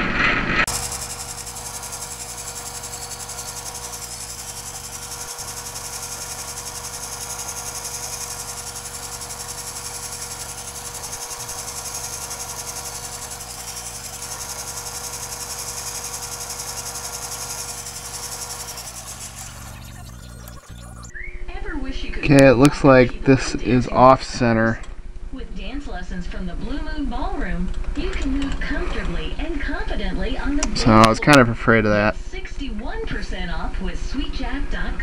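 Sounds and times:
metal lathe cutting buzz: 0:00.7 - 0:21.1.

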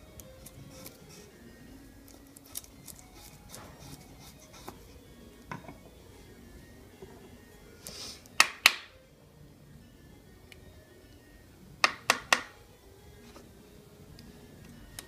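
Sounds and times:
soft background music: 0:00.0 - 0:15.0
knife shaving wood: 0:00.2 - 0:05.0.

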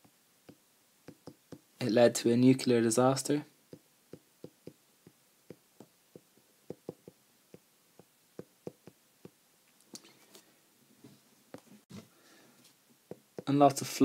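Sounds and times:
soft hiss: 0:00.0 - 0:14.0
stylus tapping on glass screen: 0:05.5 - 0:09.4.

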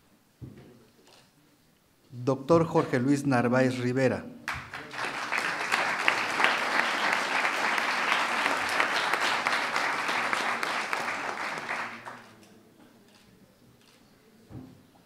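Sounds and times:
audience applauding: 0:04.5 - 0:12.3.

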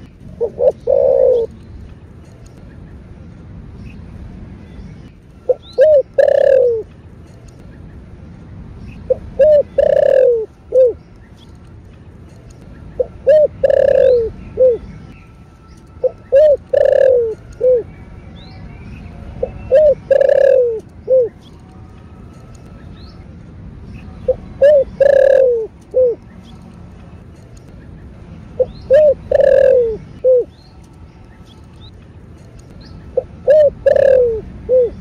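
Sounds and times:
dove cooing: 0:00.3 - 0:01.5, 0:05.5 - 0:06.9, 0:09.1 - 0:11.0, 0:13.0 - 0:14.9, 0:16.0 - 0:17.9, 0:19.4 - 0:21.4, 0:24.2 - 0:26.2, 0:28.6 - 0:30.5, 0:33.1 - 0:35.0.

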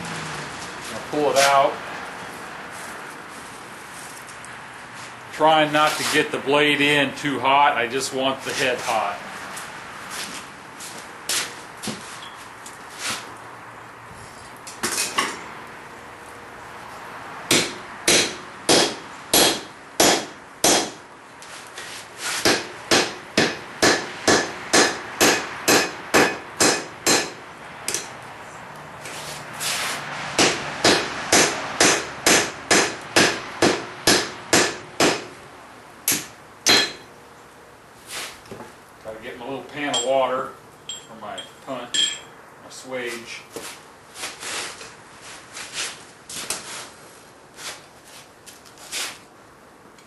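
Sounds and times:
hammer blows on anvil: 0:36.1 - 0:37.1.

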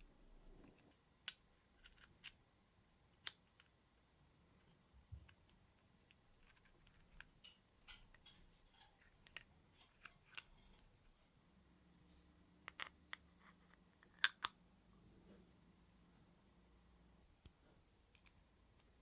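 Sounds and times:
small parts clicking and tapping: 0:00.6 - 0:02.4, 0:03.1 - 0:03.8, 0:04.6 - 0:11.0, 0:12.6 - 0:14.6.

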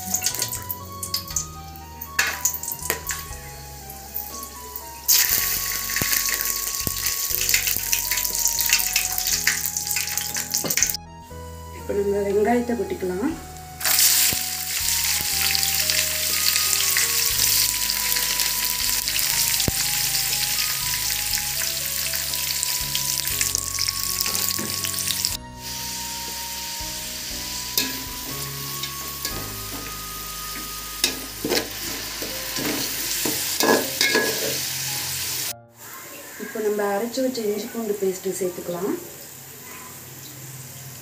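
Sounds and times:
onions sizzling in hot oil: 0:00.0 - 0:11.0, 0:13.4 - 0:41.0
metal spatula scraping pot: 0:27.7 - 0:34.8.

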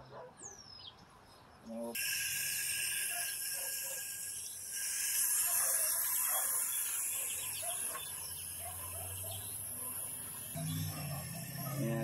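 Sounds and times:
hose water spraying: 0:02.0 - 0:12.0.

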